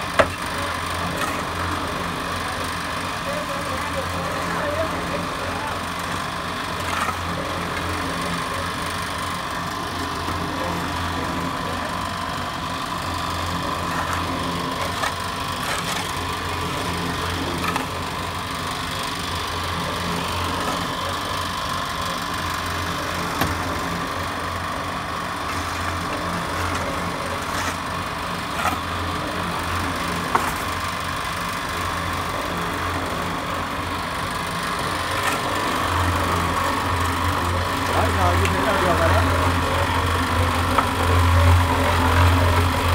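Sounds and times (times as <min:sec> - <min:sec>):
concrete mixer motor humming: 0:00.0 - 0:42.9
shovel scraping sand and mortar: 0:13.8 - 0:16.6, 0:25.4 - 0:30.7.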